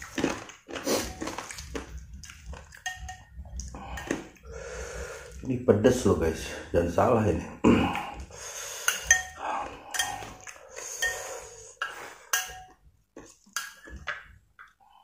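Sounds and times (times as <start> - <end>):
metal spoon clinking on bowl: 2.8 - 3.3, 8.9 - 12.8, 13.6 - 14.2.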